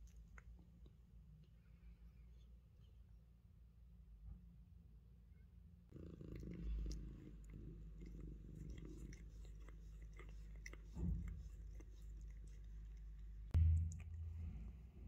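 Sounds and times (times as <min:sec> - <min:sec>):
cat licking kitten: 0:00.0 - 0:01.5, 0:05.9 - 0:14.8
soft low thumps: 0:13.5 - 0:15.0.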